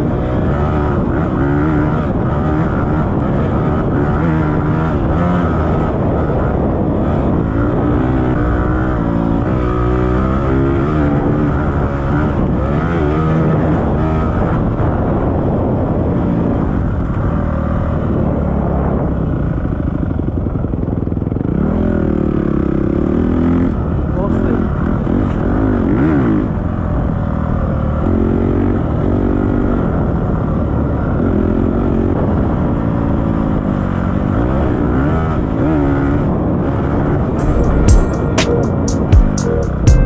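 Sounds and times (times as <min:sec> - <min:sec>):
dirt bike engine revving: 0:00.0 - 0:14.9, 0:21.3 - 0:26.8, 0:31.1 - 0:40.0.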